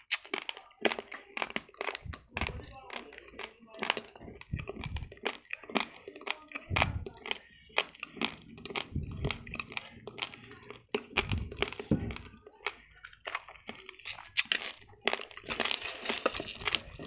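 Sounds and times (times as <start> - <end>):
rice grains crunching while chewed: 0.0 - 17.0.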